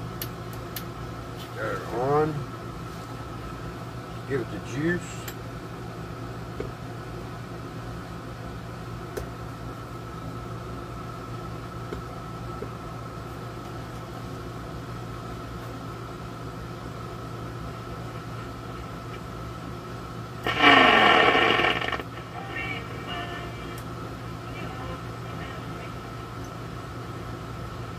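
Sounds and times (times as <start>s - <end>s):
low electrical hum: 0.0s - 27.9s
faint high whine: 20.4s - 26.6s.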